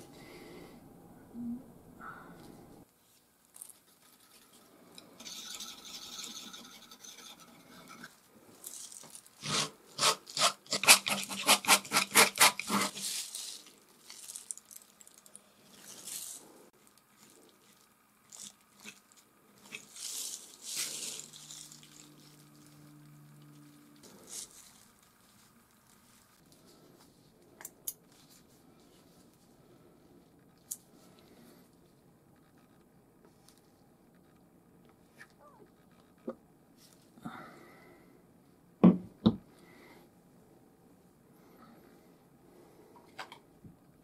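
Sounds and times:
palette knife scraping paint: 0:09.4 - 0:13.3.

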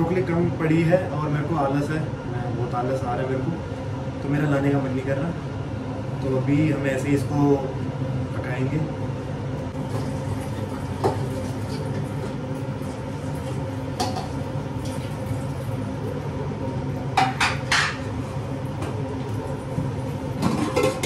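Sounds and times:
extractor fan hum: 0:00.0 - 0:21.0
pan and utensils clinking: 0:20.4 - 0:21.0.

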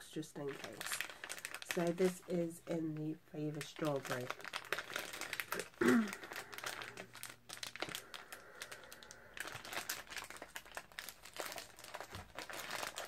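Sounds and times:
plastic wrapper crinkling: 0:00.0 - 0:13.0.

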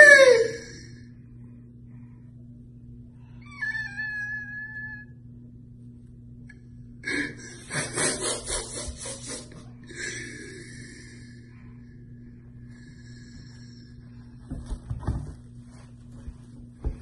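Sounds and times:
man mock crying whine: 0:00.0 - 0:00.8
rapid noisy sobbing breaths: 0:07.0 - 0:11.5.

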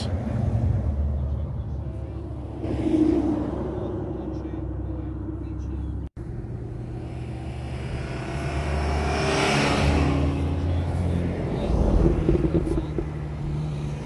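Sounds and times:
engine note rising: 0:06.2 - 0:14.0
car driving past: 0:06.4 - 0:14.0.

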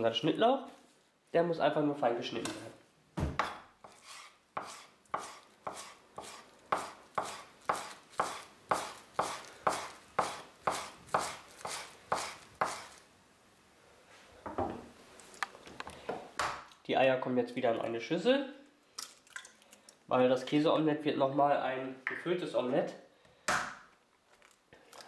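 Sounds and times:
knife chopping on wooden board: 0:03.2 - 0:12.9.

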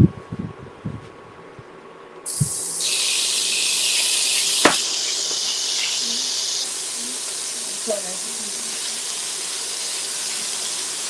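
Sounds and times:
bacon and garlic sizzling: 0:02.3 - 0:11.0
sharp click: 0:04.6 - 0:05.5.

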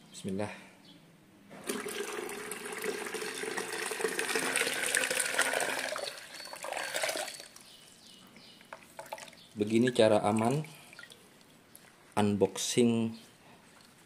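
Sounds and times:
water pouring into a pitcher: 0:01.6 - 0:07.6.

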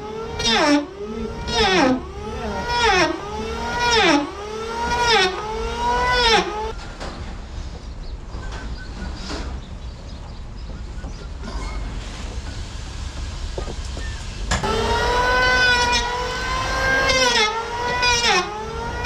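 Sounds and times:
electric drill boring into wood: 0:00.0 - 0:06.7, 0:14.6 - 0:19.0.

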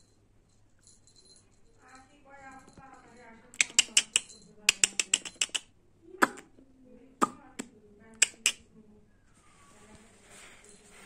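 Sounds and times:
collar clicking and jingling: 0:00.0 - 0:05.7.

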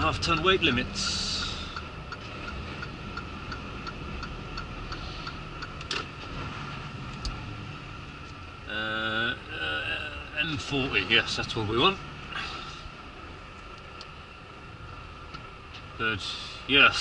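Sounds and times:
turn signal ticking: 0:00.0 - 0:06.3
road noise: 0:00.0 - 0:17.0
truck engine drone: 0:00.0 - 0:17.0.

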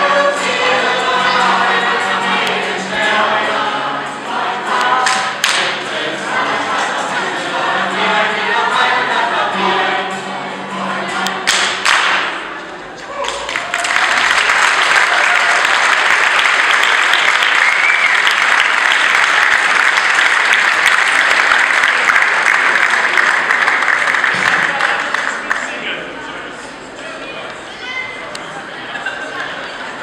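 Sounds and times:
crowd applause: 0:00.0 - 0:03.3, 0:13.0 - 0:26.5
choir singing: 0:00.0 - 0:12.6.

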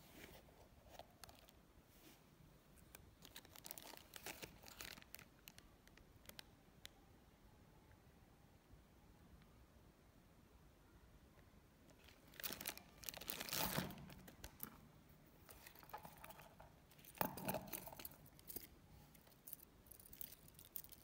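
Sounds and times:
plastic bag crinkling: 0:03.2 - 0:05.6, 0:12.0 - 0:14.8, 0:15.4 - 0:21.0.

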